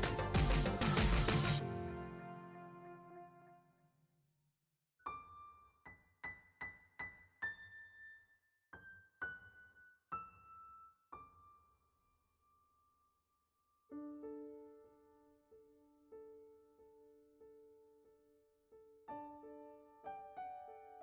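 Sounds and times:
keyboard chord: 0.0 - 3.7
slow keyboard melody: 0.0 - 3.7.

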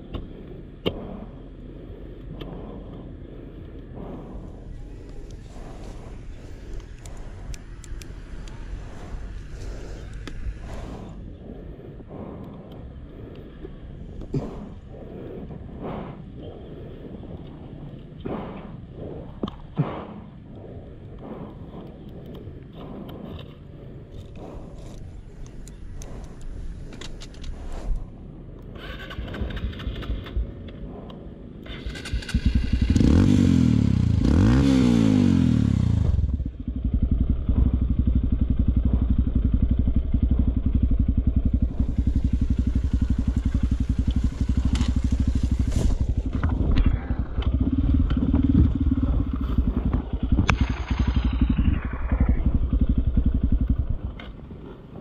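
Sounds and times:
dirt bike engine revving: 31.7 - 54.0.

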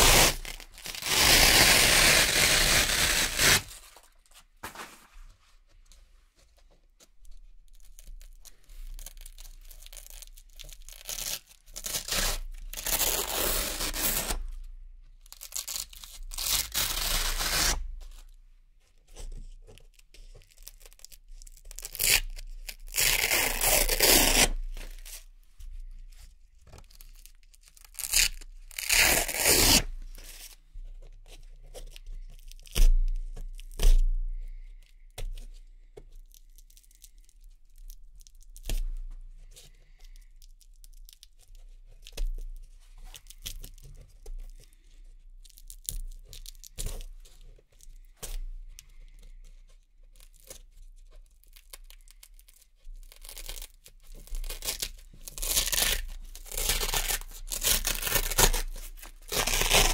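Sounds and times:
velcro ripping: 0.0 - 4.0, 9.0 - 14.4, 15.3 - 17.9, 21.7 - 25.2, 27.0 - 29.9, 51.5 - 59.9.

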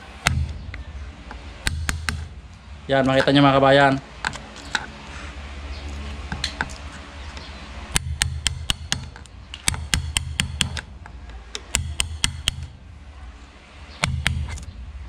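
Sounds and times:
chisel tapping into wood: 11.7 - 12.7.

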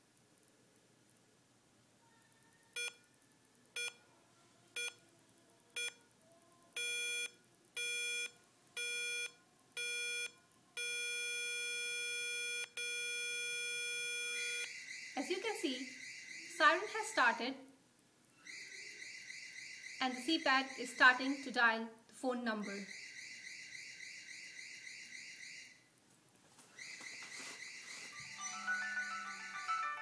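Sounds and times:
alarm keypad beeps: 4.8 - 5.0, 6.8 - 17.0
continuous alarm tone: 6.8 - 17.4, 18.4 - 21.7, 22.6 - 25.9, 26.7 - 30.0.

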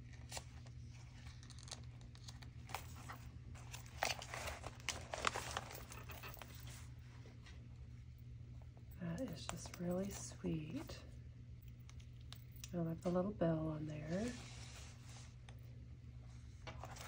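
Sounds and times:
paper rustling and crinkling: 0.0 - 7.6, 16.5 - 17.0.

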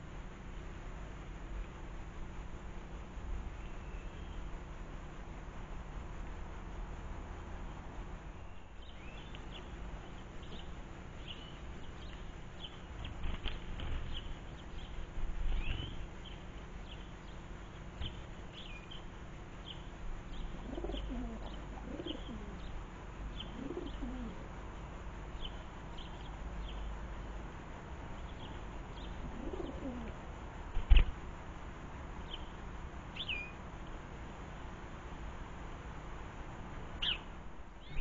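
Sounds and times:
small birds chirping: 3.5 - 4.6, 8.3 - 31.2, 32.1 - 34.1, 36.9 - 38.0
pigeon cooing: 20.5 - 22.7, 23.4 - 24.4, 29.2 - 30.2.

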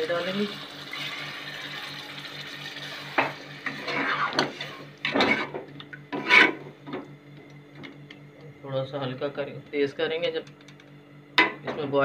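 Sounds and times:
spoon stirring in metal pot: 6.2 - 6.6.

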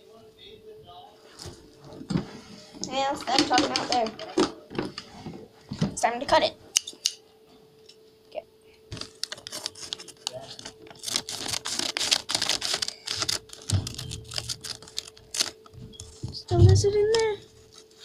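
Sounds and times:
paper crinkling and rustling: 8.9 - 18.0
scissors snipping paper bag: 9.0 - 15.6.

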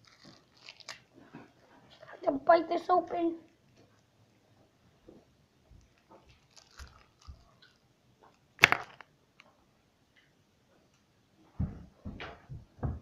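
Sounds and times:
candy cracking: 0.0 - 1.1, 5.8 - 9.1
teeth crunching hard candy: 6.3 - 7.8.

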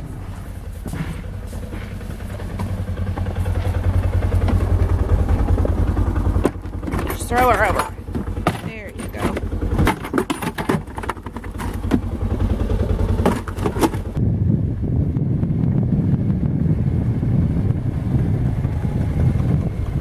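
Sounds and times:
utility vehicle driving through snow: 0.0 - 8.6, 9.2 - 14.3
knocks and rattles: 0.0 - 14.2
engine idling: 0.0 - 15.2.

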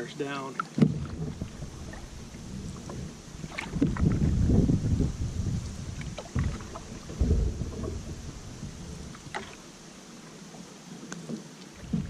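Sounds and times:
water swishing with paddle strokes: 0.0 - 12.0
low thumps: 0.8 - 9.4, 11.8 - 12.0.

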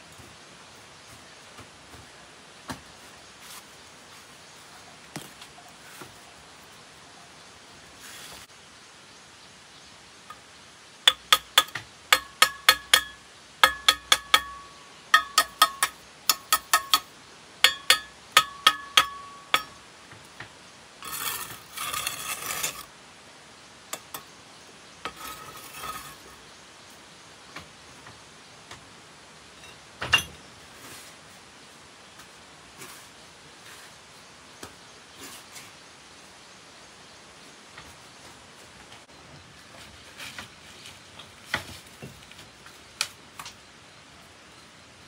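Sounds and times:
scraping or rattling: 21.0 - 22.9, 25.0 - 26.4.

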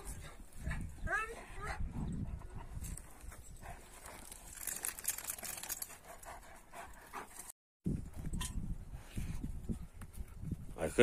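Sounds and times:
dogs panting: 0.0 - 7.6.

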